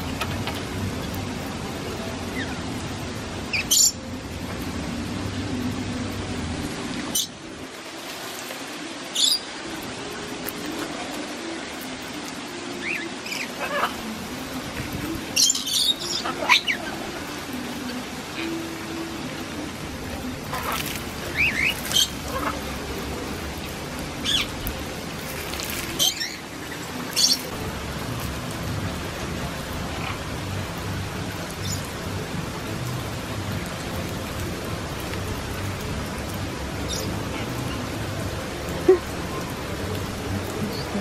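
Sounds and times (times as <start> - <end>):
parrots squawking: 12.8 - 14.0, 15.4 - 17.0, 20.5 - 22.8.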